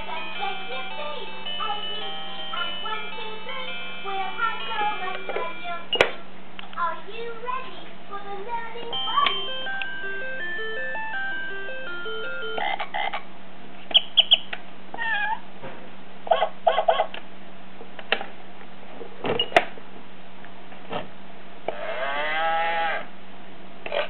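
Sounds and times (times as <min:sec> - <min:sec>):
toy playing animal calls: 0:00.0 - 0:06.0, 0:08.9 - 0:13.2, 0:21.7 - 0:23.1
low electrical hum: 0:00.0 - 0:24.0.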